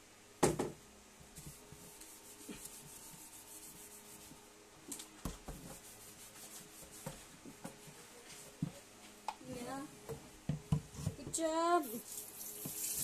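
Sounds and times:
sponge scrubbing cutting board: 5.5 - 7.3.

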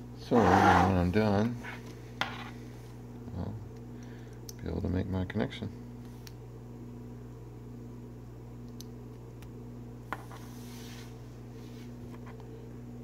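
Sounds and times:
steady low hum: 0.0 - 13.0
light rubbing: 0.3 - 2.6.

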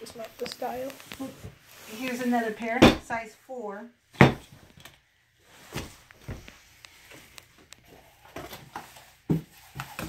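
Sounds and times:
shoes thunking on table: 4.2 - 4.5.

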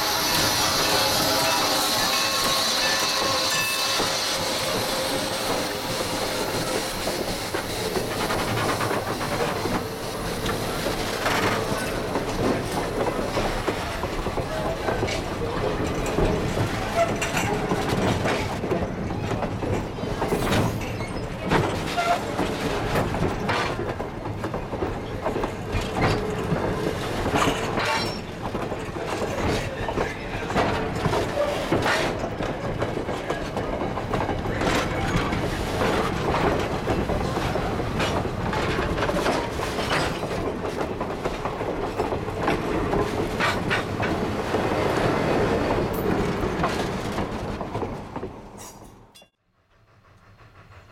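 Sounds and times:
wheels clacking over rail joints: 0.0 - 49.0
train wheels rumbling on rails: 0.0 - 50.9.

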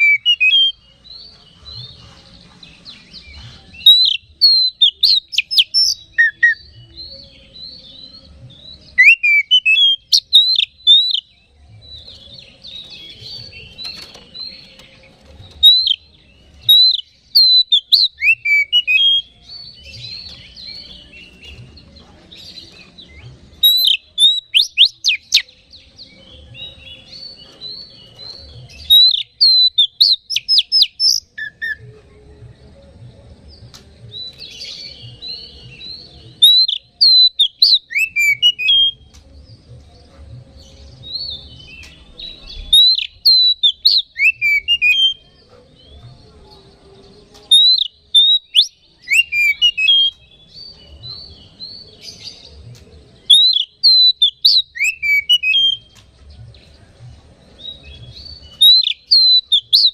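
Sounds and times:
bird singing sharp whistles: 9.0 - 11.3, 53.3 - 56.0, 58.5 - 59.9.

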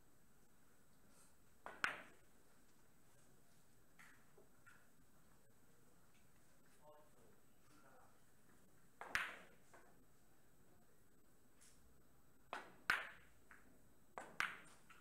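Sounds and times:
billiard balls clicking: 1.6 - 2.2, 12.6 - 15.0
cue tapping ball: 1.7 - 2.2, 9.0 - 9.5, 14.2 - 14.9.

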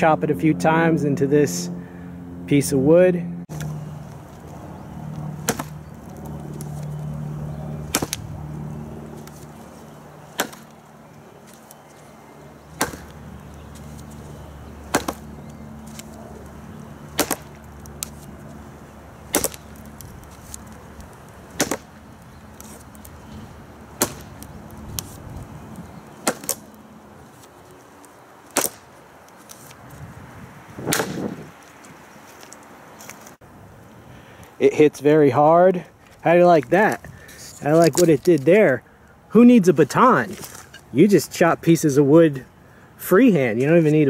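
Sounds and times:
knife chopping wooden stump: 5.4 - 5.8, 7.9 - 8.3, 10.4 - 10.7, 12.8 - 13.2, 14.9 - 15.3, 17.1 - 18.2, 19.3 - 19.8, 21.6 - 22.0, 24.0 - 25.1, 26.2 - 26.6, 28.5 - 28.8, 30.8 - 31.4.

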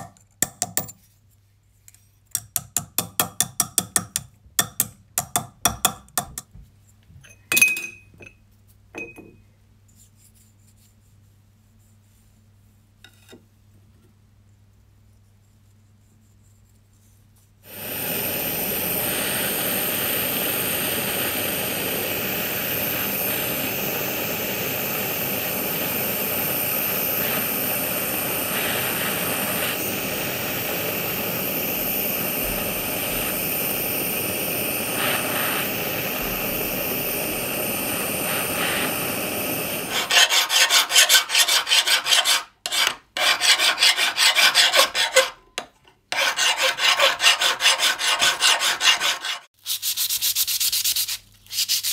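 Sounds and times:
gas torch flame roaring: 17.6 - 41.5
hand file rasping on metal: 39.9 - 45.4, 46.1 - 49.5.

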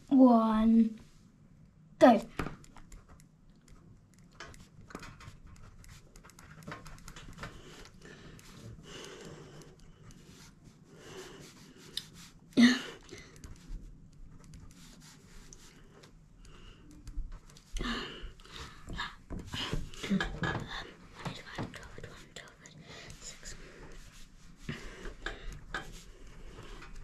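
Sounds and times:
pen writing on paper: 4.4 - 12.3, 13.2 - 17.6, 23.0 - 27.0
person breathing: 7.4 - 13.5, 17.7 - 21.0, 22.8 - 27.0.

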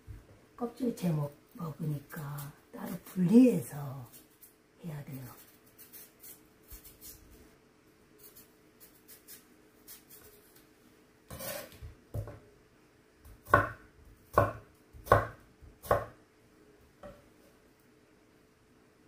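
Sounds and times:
knife scraping fruit peel: 5.1 - 7.3, 8.2 - 10.6, 11.3 - 11.8
knife chopping into wooden board: 13.4 - 16.2.

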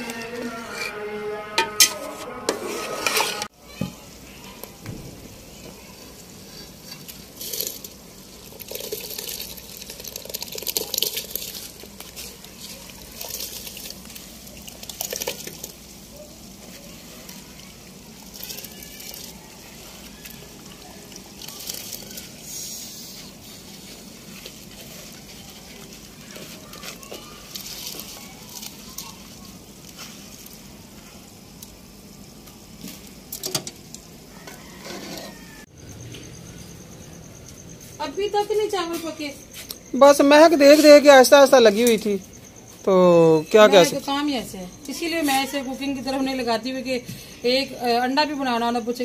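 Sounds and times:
metal spatula scraping a pot: 0.0 - 3.5, 6.0 - 7.9, 34.4 - 35.6.

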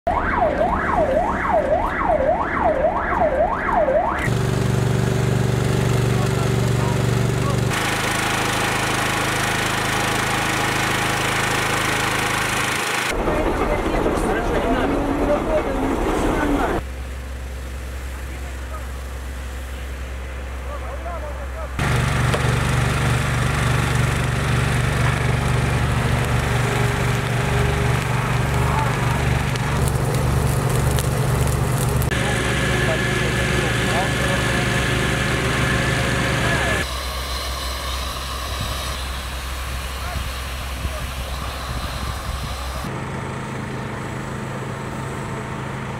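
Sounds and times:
siren rising and falling: 0.1 - 4.3
small engine running steadily: 4.3 - 14.4, 16.7 - 45.9.

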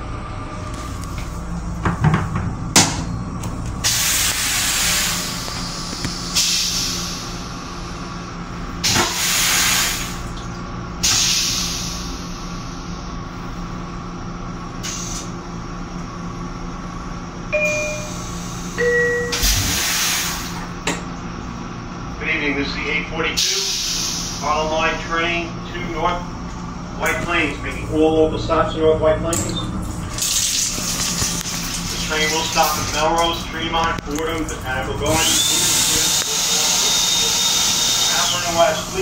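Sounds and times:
railcar hum: 0.0 - 39.0
air hissing: 3.8 - 7.4, 8.8 - 10.2, 11.0 - 12.9, 14.8 - 15.3, 18.0 - 20.7, 23.4 - 24.7, 35.1 - 39.0
descending two-tone chime: 17.6 - 19.4.

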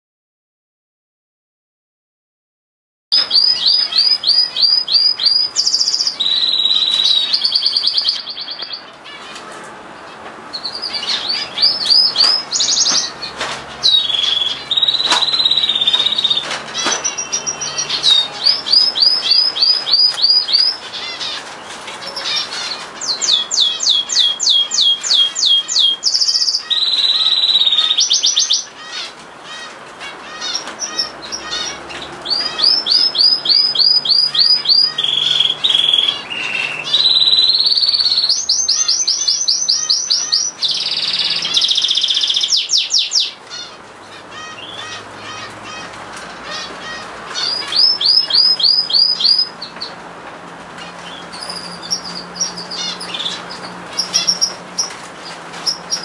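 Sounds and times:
canary singing: 3.1 - 56.0.

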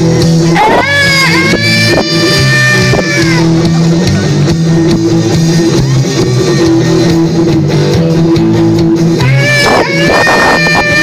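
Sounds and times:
live rock band playing: 0.0 - 11.0.

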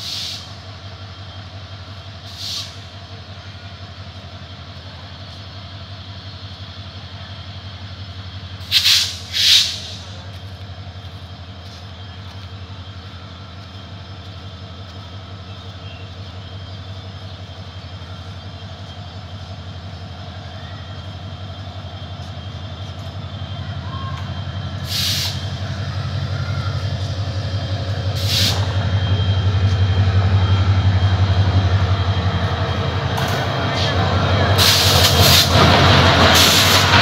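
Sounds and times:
loud hisses: 0.0 - 0.7, 2.2 - 3.1, 8.6 - 10.3, 24.5 - 37.0
diesel locomotive engine drone: 0.0 - 37.0.

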